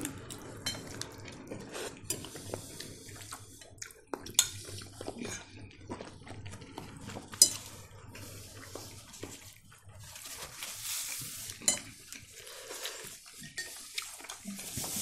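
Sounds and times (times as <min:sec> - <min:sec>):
forks and dishes clinking: 0:07.2 - 0:07.7, 0:11.5 - 0:12.2.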